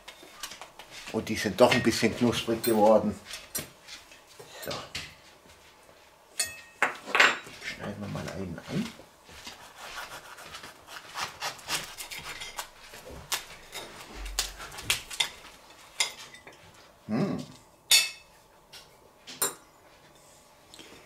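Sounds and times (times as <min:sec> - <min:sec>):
cutlery clinking on plate: 0:06.4 - 0:07.5
knife cutting crispy wrap: 0:09.5 - 0:13.7.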